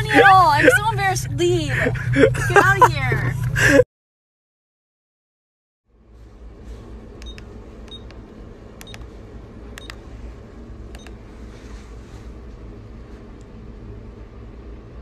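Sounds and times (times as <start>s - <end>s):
steady low hum: 0.0s - 3.8s, 5.9s - 15.0s
keypad beeps: 7.2s - 8.2s, 9.8s - 10.0s.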